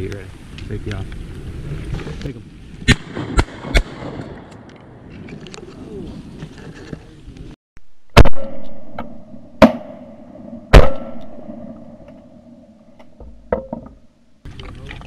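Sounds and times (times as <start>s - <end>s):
shotgun shots: 2.8s - 4.7s, 8.1s - 12.1s.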